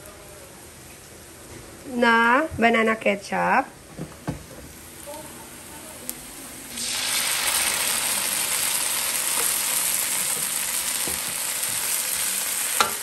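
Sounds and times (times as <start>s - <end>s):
sauce sizzling in a wok: 4.6s - 13.0s.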